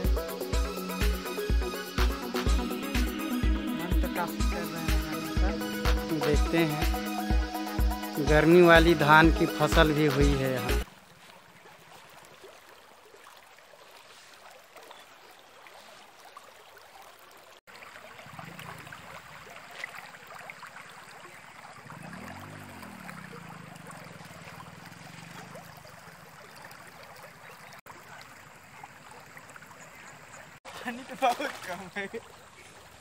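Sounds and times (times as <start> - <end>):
water flowing over stones: 8.2 - 33.0.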